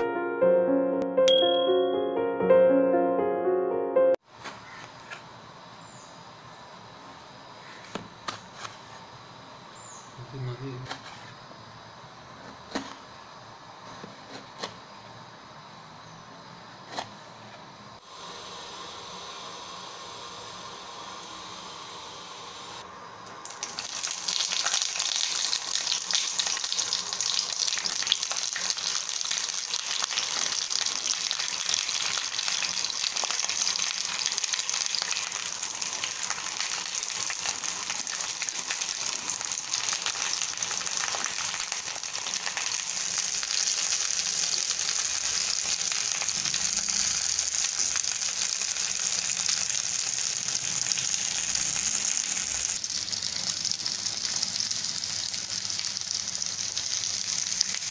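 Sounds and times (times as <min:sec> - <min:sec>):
eggplants sizzling in hot oil: 0:17.7 - 0:57.9.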